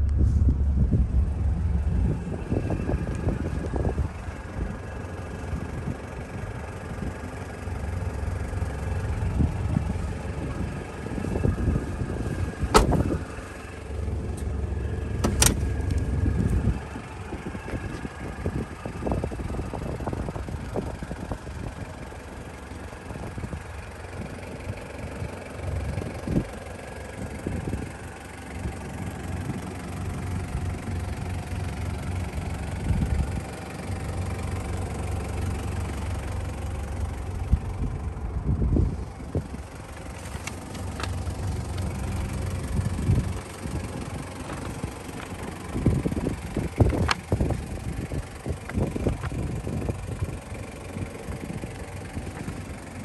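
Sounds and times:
short low thumps: 0:00.0 - 0:03.8
diesel engine idling: 0:00.0 - 0:53.0.

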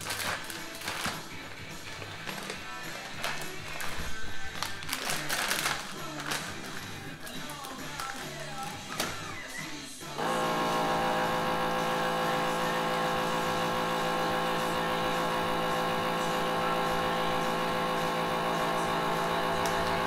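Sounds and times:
vacuum sealer pump humming: 0:10.2 - 0:20.0.

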